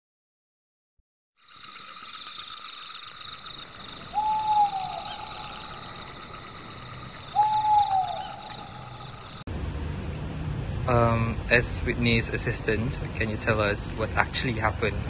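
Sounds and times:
high-pitched insect chirping: 1.4s - 9.4s
owl hooting: 1.5s - 9.4s.

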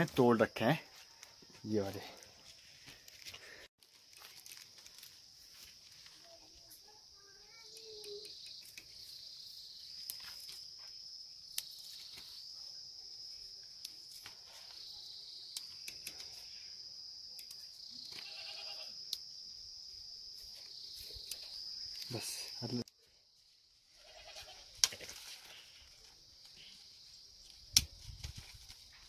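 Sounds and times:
insects chirring: 0.0s - 29.0s
faint bleat: 18.2s - 19.0s, 24.0s - 24.6s.

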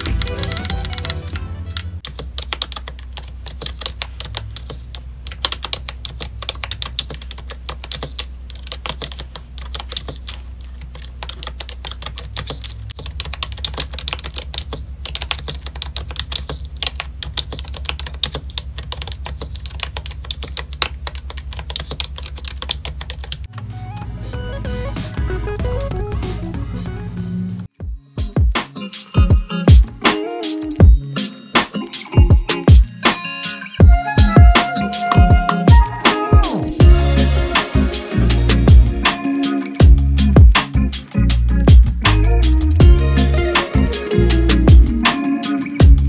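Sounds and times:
fast keyboard typing: 0.0s - 24.1s.

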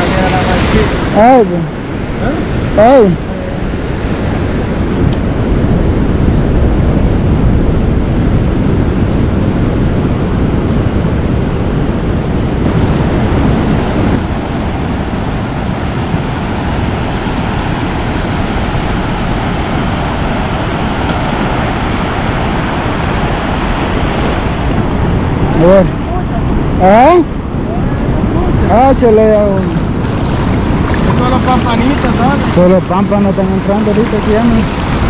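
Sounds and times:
ocean surf breaking: 0.0s - 35.0s
wind rumble on microphone: 0.0s - 35.0s.

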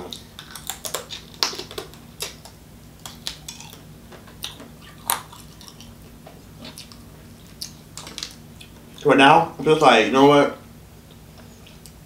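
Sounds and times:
person chewing close to microphone: 0.0s - 9.0s.

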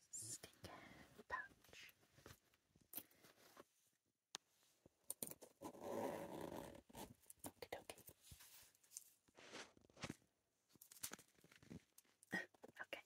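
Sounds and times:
zipper pull clicks: 5.2s - 7.0s
zipper unzipping: 5.6s - 7.1s.

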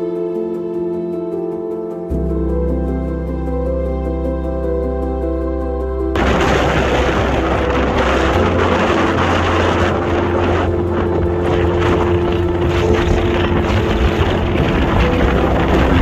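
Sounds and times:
background music: 0.0s - 16.0s
wind on microphone: 6.2s - 16.0s.

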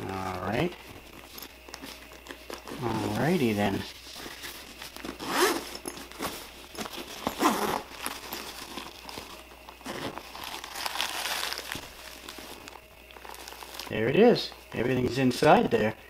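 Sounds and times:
fabric rustling: 0.8s - 13.9s
zipper being pulled open: 2.6s - 3.2s, 5.0s - 6.4s, 7.2s - 8.5s.

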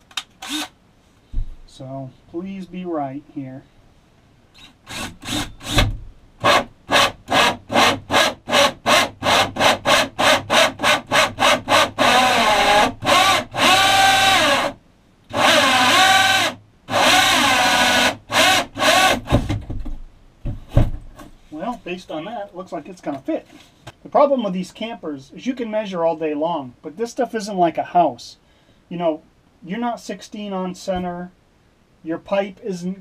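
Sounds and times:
cordless drill with hole saw: 0.4s - 0.8s, 4.6s - 19.5s.

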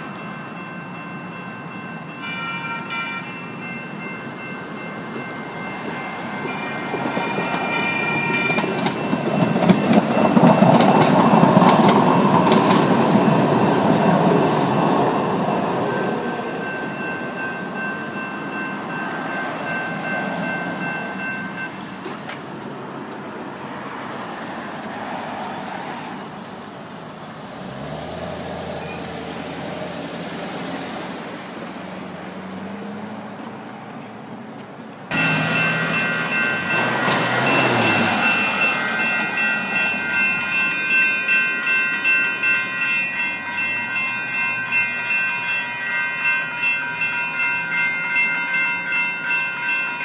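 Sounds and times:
crossing bells ringing: 0.0s - 33.1s, 35.1s - 50.0s
train wheels clicking: 5.8s - 15.9s, 24.1s - 26.8s, 34.0s - 41.4s
car engine: 27.2s - 33.5s.

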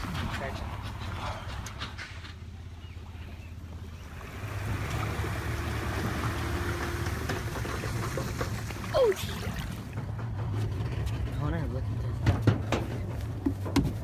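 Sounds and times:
low steady rumble: 0.0s - 14.0s
water flowing and trickling: 4.0s - 10.4s.

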